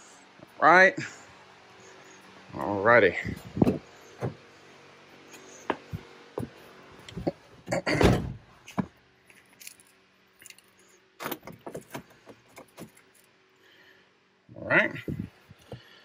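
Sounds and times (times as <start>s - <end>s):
car door shutting: 8.0s - 8.4s.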